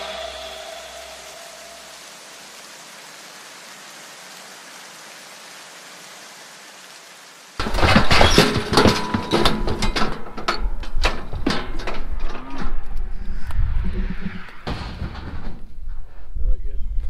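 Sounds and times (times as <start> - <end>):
steady hiss: 0.0 - 17.0
cattle chute clanging and rattling: 7.6 - 13.0.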